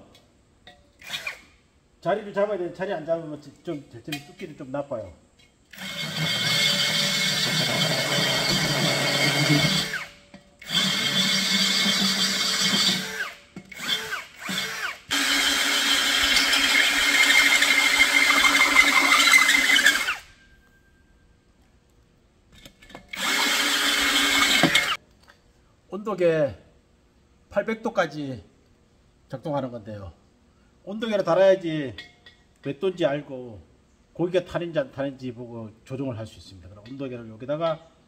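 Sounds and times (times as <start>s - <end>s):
drill hole saw cutting ceramic: 5.8s - 20.3s, 23.1s - 25.0s.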